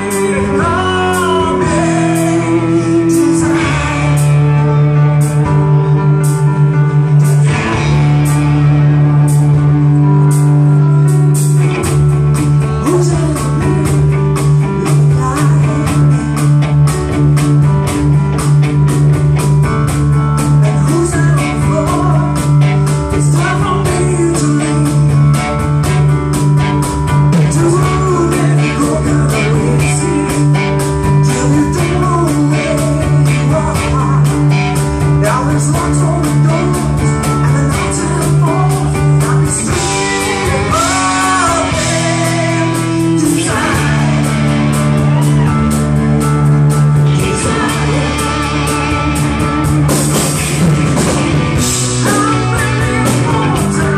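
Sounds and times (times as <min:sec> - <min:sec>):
female lead vocal: 0:00.0 - 0:04.6, 0:12.6 - 0:16.5, 0:27.4 - 0:45.6, 0:47.0 - 0:50.0, 0:51.8 - 0:53.9
rock band playing: 0:00.0 - 0:53.9.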